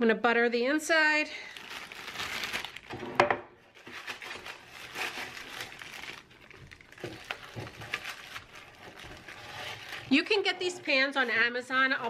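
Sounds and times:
plastic bag crinkling: 0:01.3 - 0:12.0
plastic scraping metal loaf pan: 0:07.0 - 0:12.0.

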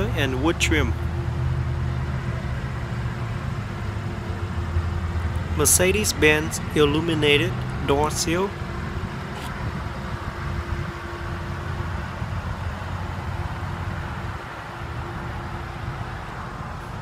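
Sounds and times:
constant hum: 0:00.0 - 0:17.0
vehicle rumble: 0:00.0 - 0:17.0.

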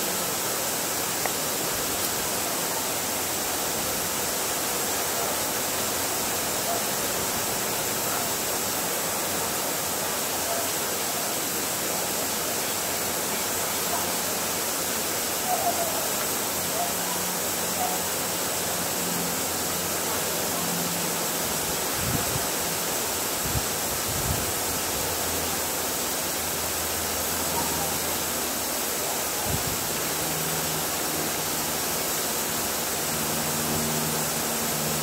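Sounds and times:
steady rushing noise: 0:17.2 - 0:35.0.

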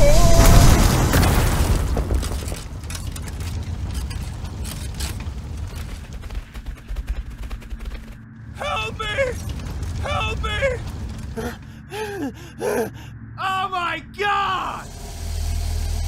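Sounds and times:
loud explosion boom: 0:00.0 - 0:02.5
quiet clicks and crackles: 0:01.7 - 0:08.3.

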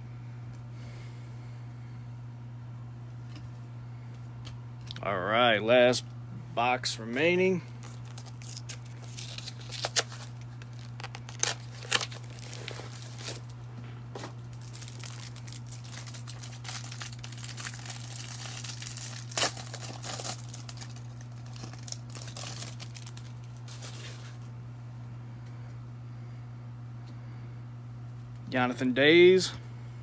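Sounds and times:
plastic wrapping crinkling: 0:07.7 - 0:24.5.

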